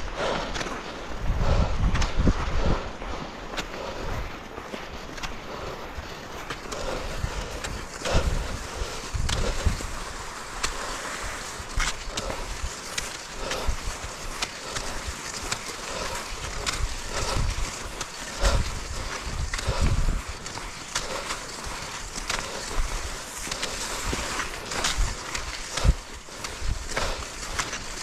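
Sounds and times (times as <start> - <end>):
skis scraping over snow: 0.0 - 28.0.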